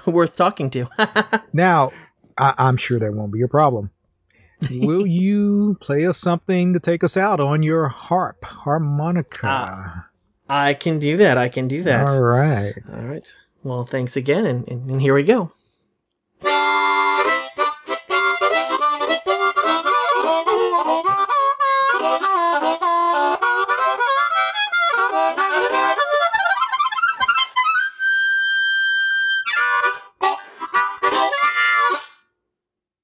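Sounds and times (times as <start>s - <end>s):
harmonica playing: 16.4s - 32.4s.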